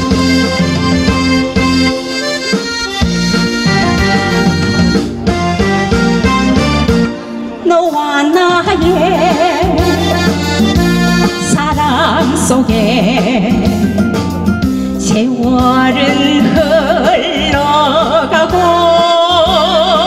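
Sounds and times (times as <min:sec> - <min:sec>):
backing track with bass and beat: 0:00.0 - 0:20.0
woman singing with vibrato: 0:07.6 - 0:13.9, 0:15.0 - 0:20.0.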